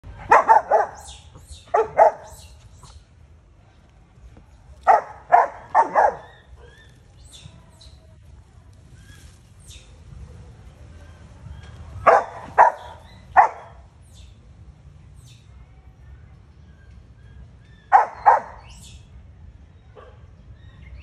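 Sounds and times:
dog barking: 0:00.2 - 0:02.5, 0:04.9 - 0:06.5, 0:12.0 - 0:13.8, 0:17.9 - 0:18.7, 0:20.0 - 0:20.2.

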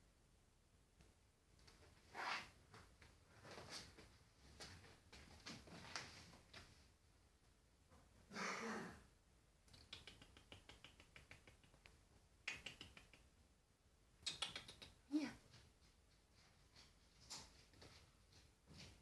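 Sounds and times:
kitten claws clicking on wood: 0:09.7 - 0:13.3.

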